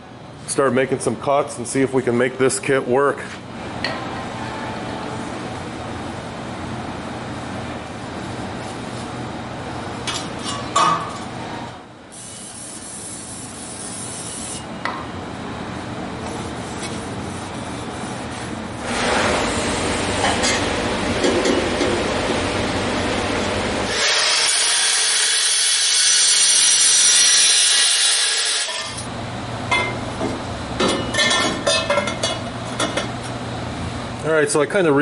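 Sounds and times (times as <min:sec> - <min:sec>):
steady hum: 0:00.0 - 0:24.7
cut-off wheel cutting metal pipe: 0:23.9 - 0:29.0.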